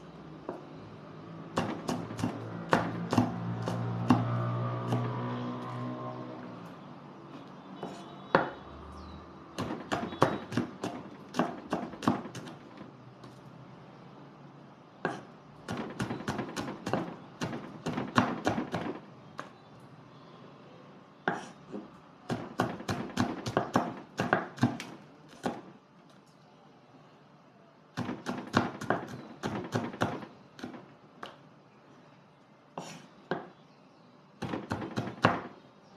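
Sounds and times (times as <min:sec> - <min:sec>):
knife chopping on wooden board: 0:01.6 - 0:05.2, 0:07.8 - 0:08.6, 0:09.6 - 0:12.6, 0:15.0 - 0:19.0, 0:21.3 - 0:25.7, 0:28.0 - 0:31.4, 0:32.8 - 0:33.5, 0:34.4 - 0:35.5.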